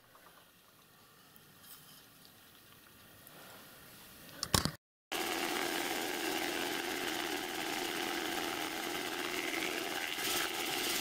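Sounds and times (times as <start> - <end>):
motor hum: 5.1 - 11.0.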